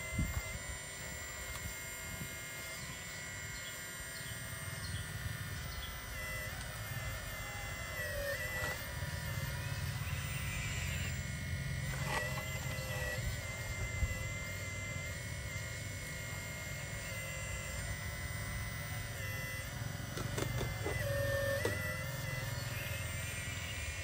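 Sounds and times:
electric motors whining: 0.0s - 24.0s.

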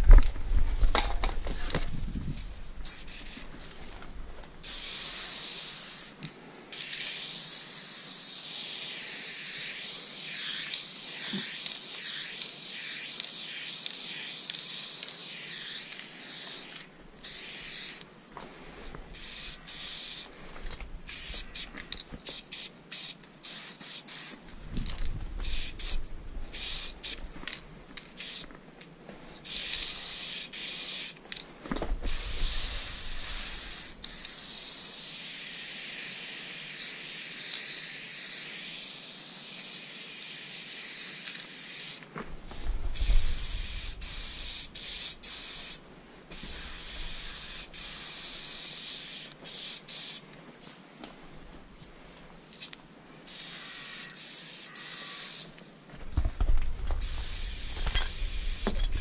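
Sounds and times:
spray paint can hissing: 2.3s - 3.5s, 4.6s - 18.0s, 19.1s - 20.3s, 21.1s - 28.5s, 29.4s - 31.2s, 32.1s - 42.0s, 42.9s - 50.2s, 52.5s - 55.6s, 57.0s - 59.0s.

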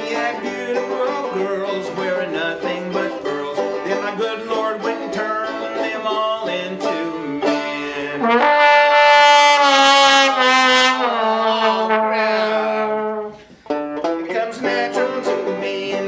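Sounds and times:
banjo picking: 0.0s - 9.5s, 10.2s - 16.0s
trombone long held note: 8.2s - 13.4s.

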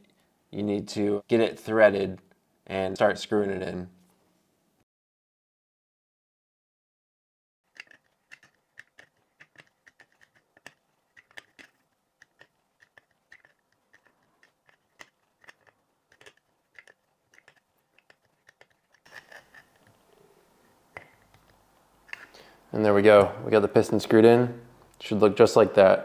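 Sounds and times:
faint metal clicks and scrapes: 7.7s - 22.5s.

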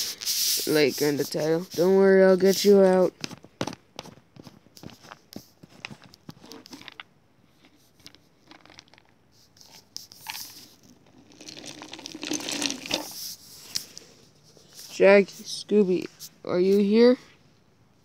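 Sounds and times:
peanuts sliding out of jar: 7.6s - 14.1s.

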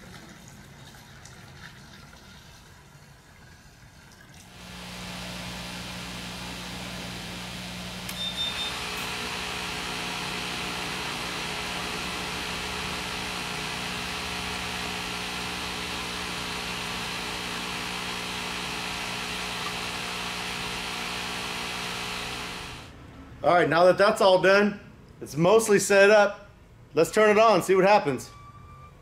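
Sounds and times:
pump and fan running: 0.0s - 23.0s
short high beep: 8.1s - 8.8s, 28.3s - 29.0s.

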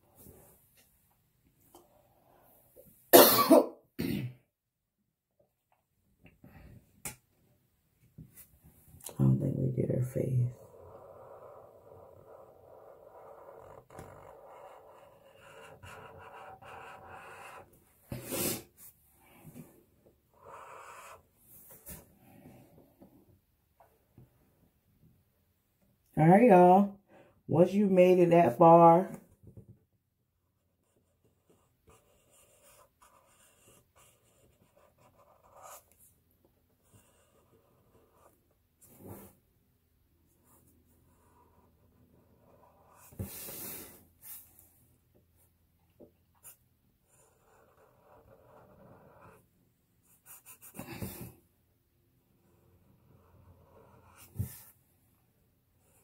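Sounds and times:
marker rubbing on paper: 9.8s - 19.0s, 20.3s - 22.1s, 30.6s - 36.2s, 36.8s - 39.4s, 40.5s - 44.6s, 46.4s - 49.4s, 50.0s - 51.3s, 53.0s - 54.8s.

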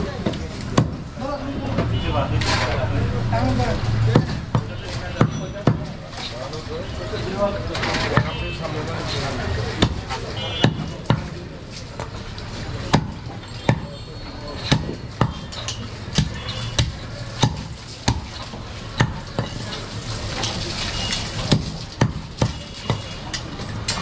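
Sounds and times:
knife chopping on wooden block: 16.2s - 19.6s, 21.5s - 23.1s.

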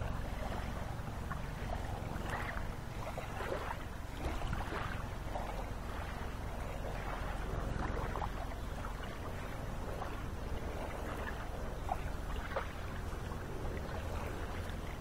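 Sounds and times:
small waves lapping: 0.0s - 15.0s.

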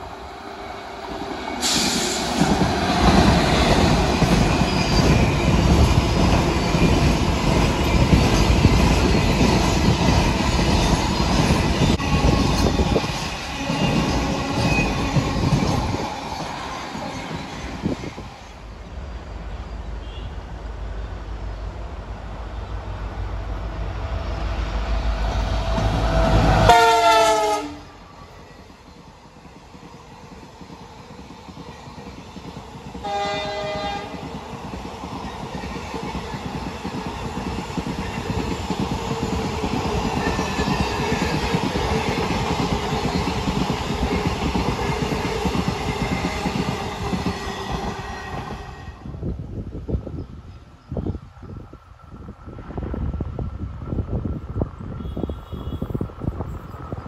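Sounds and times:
train rumble and wheel clatter: 0.0s - 57.0s
locomotive horn blast: 25.5s - 27.9s, 33.0s - 34.1s, 55.0s - 56.0s.

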